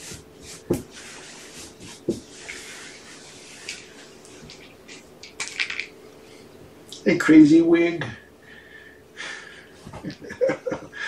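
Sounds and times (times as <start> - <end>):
kittens rustling and scratching: 0.0 - 6.4
faint steady hum: 0.0 - 11.0.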